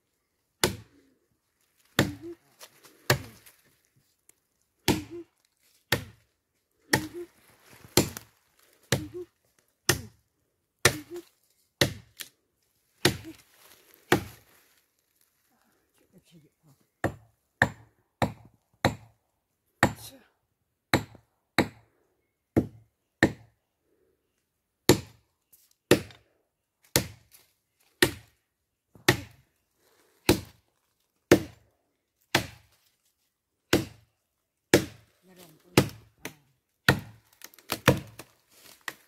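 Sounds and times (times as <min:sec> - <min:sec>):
machete chopping tree trunk: 0:00.6 - 0:01.0, 0:01.9 - 0:02.3, 0:03.0 - 0:03.4, 0:04.8 - 0:05.2, 0:05.9 - 0:06.2, 0:06.9 - 0:07.2, 0:07.9 - 0:08.3, 0:08.9 - 0:09.2, 0:09.8 - 0:10.2, 0:10.8 - 0:11.2, 0:11.8 - 0:12.3, 0:13.0 - 0:13.4, 0:14.1 - 0:14.3, 0:17.0 - 0:19.2, 0:19.8 - 0:20.2, 0:20.9 - 0:21.8, 0:22.6 - 0:23.5, 0:24.9 - 0:25.2, 0:25.9 - 0:26.2, 0:26.8 - 0:27.3, 0:28.0 - 0:28.3, 0:29.0 - 0:29.4, 0:30.2 - 0:30.6, 0:31.3 - 0:31.6, 0:32.3 - 0:32.8, 0:33.7 - 0:34.1, 0:34.7 - 0:39.0.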